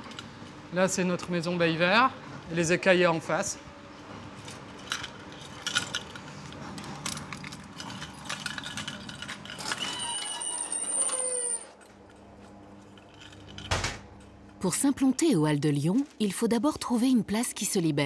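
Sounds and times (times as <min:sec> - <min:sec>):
clatter of clinks and knocks: 0:04.4 - 0:10.0
high squeal: 0:09.8 - 0:11.7.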